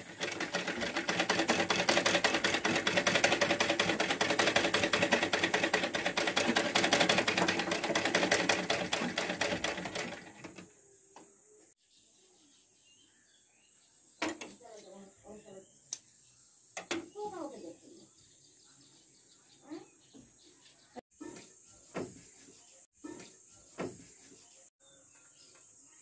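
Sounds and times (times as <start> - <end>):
sewing machine clatter: 0.0 - 10.7.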